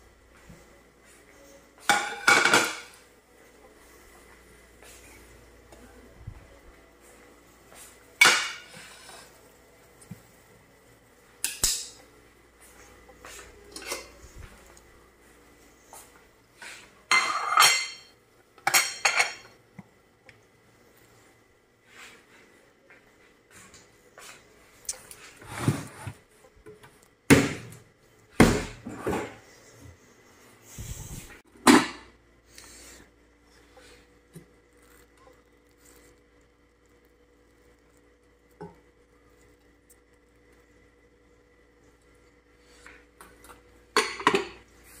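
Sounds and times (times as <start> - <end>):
kitchen items knocking and clattering: 1.8 - 3.0, 25.4 - 29.5, 31.5 - 32.2, 43.9 - 44.6
knife and plates clattering: 17.1 - 18.1.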